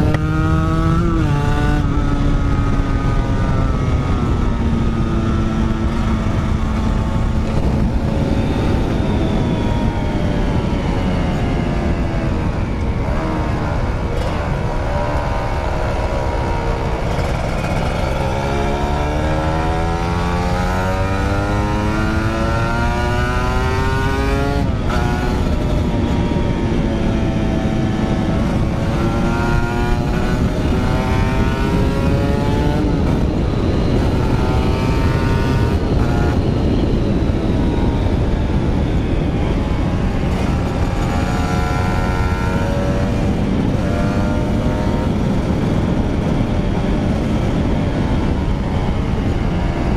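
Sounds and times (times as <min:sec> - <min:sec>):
motorcycle engine revving: 0:00.0 - 0:49.9
wind and road noise: 0:00.0 - 0:49.9.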